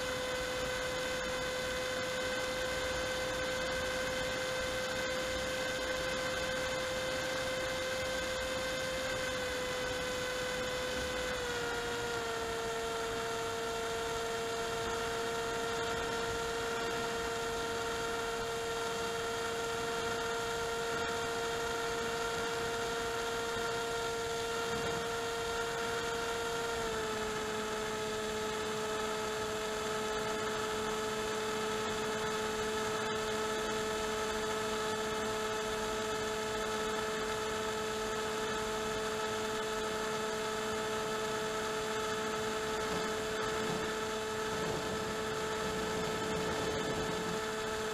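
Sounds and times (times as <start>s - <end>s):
electric motor whine: 0.0s - 47.9s
wind rush: 44.5s - 47.5s.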